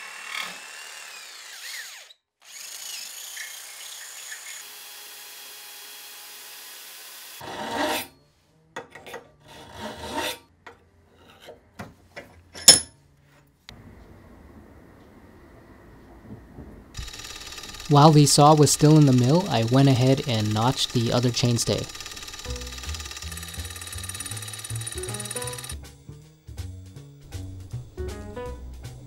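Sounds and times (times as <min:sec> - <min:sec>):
jigsaw cutting wood: 0:00.0 - 0:07.4, 0:17.0 - 0:25.8.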